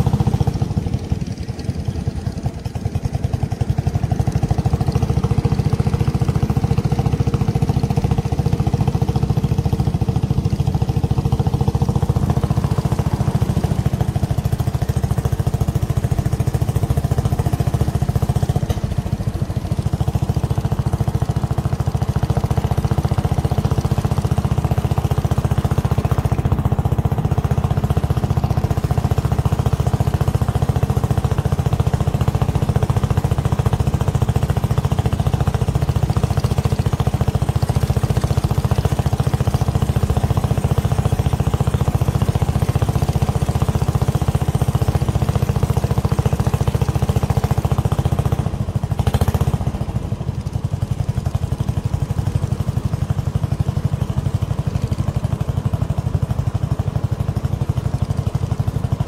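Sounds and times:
small boat engine running: 0.0s - 59.0s.

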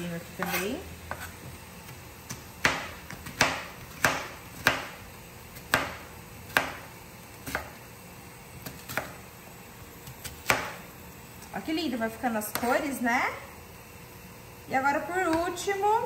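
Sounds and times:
knife chopping on cutting board: 0.4s - 5.0s, 5.6s - 7.8s, 8.6s - 9.2s, 10.0s - 10.8s.

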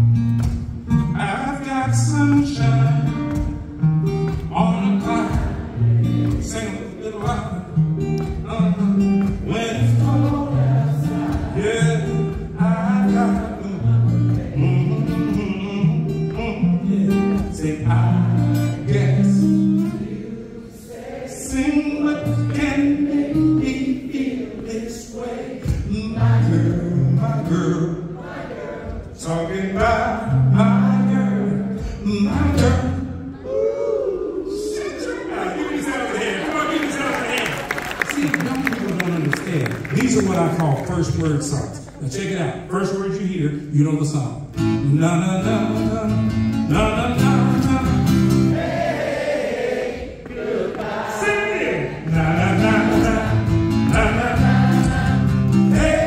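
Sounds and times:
strummed acoustic string instrument: 0.0s - 33.3s, 44.5s - 49.0s, 51.9s - 56.0s
man singing: 1.0s - 3.4s, 4.5s - 20.2s, 21.3s - 28.2s, 29.1s - 33.3s, 43.7s - 48.3s, 51.2s - 56.0s.

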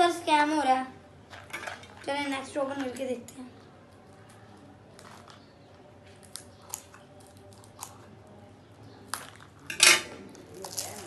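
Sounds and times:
plastic wrapper crackling: 10.3s - 11.0s.

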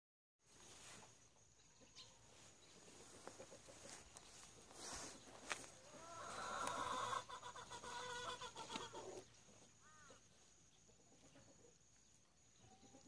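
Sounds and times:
chicken calling: 5.8s - 10.2s.

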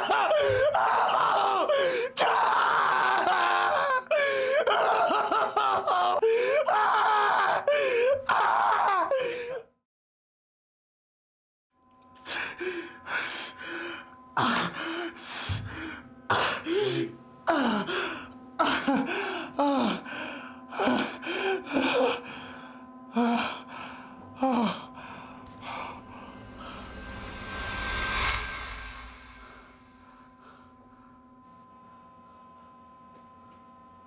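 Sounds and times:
man crying out in pain: 0.0s - 9.7s
low hum: 19.5s - 33.9s.

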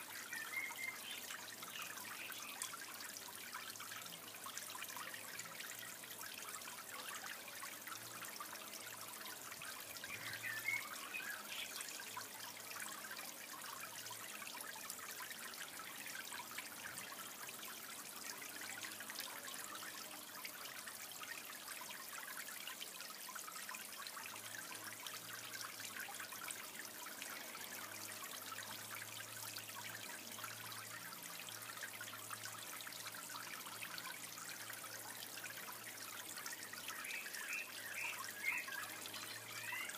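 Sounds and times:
water trickling in a pond: 0.0s - 39.9s.

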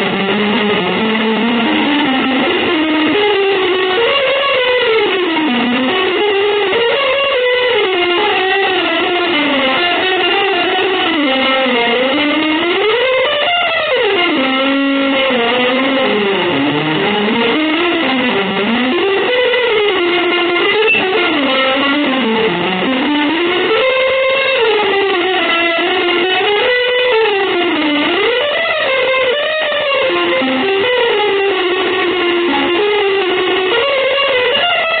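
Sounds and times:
electric guitar sliding pitch: 0.0s - 35.0s.

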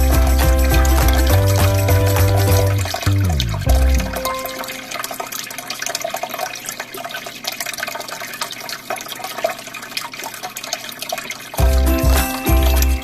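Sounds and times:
background music: 0.0s - 4.9s, 11.6s - 13.0s
aquarium water bubbling: 0.0s - 13.0s.

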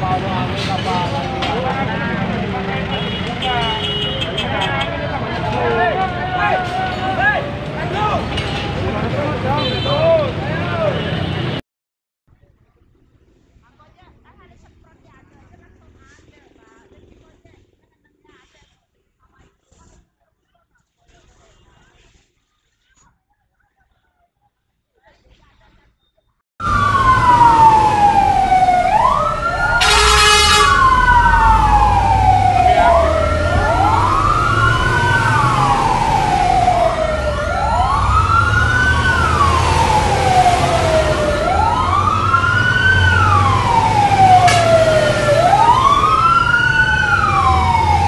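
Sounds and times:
fire engine siren wailing: 0.0s - 11.0s, 26.6s - 48.0s
truck engine rumble: 0.0s - 11.6s, 26.6s - 48.0s
horn blast: 0.5s - 5.2s, 26.7s - 42.1s.

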